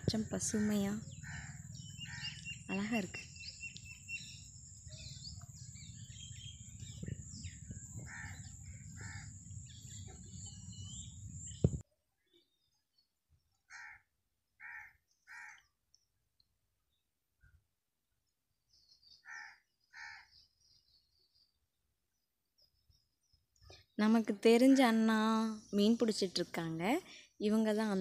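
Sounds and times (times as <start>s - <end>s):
small birds chirping: 0.0s - 14.0s, 18.2s - 28.0s
crows cawing: 0.5s - 2.4s, 8.0s - 9.4s, 13.7s - 15.6s, 19.2s - 20.3s.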